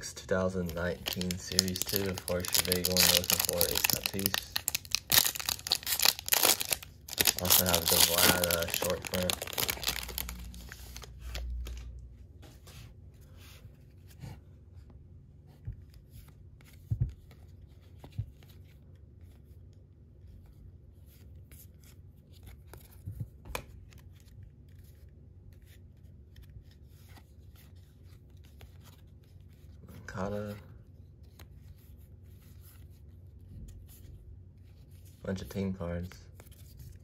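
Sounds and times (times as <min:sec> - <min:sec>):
cards scraping: 0:00.5 - 0:11.5.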